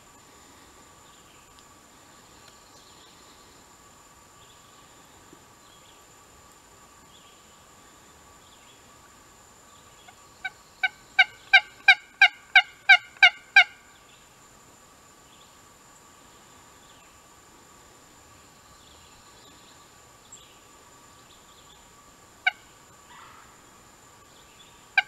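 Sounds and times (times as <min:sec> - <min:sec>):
turkey hen yelps: 0:11.2 - 0:13.7.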